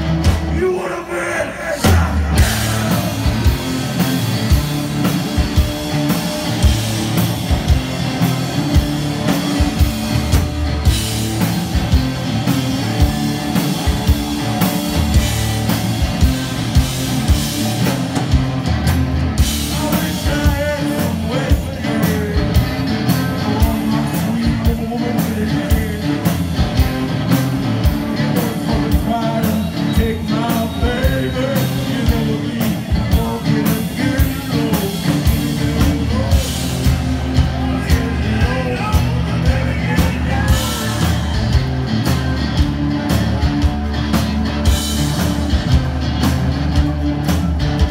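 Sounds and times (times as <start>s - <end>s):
drum kit beating: 0.0s - 0.8s, 1.8s - 47.9s
guitar: 0.0s - 47.9s
person singing: 0.5s - 4.0s, 19.6s - 26.5s, 27.8s - 41.5s.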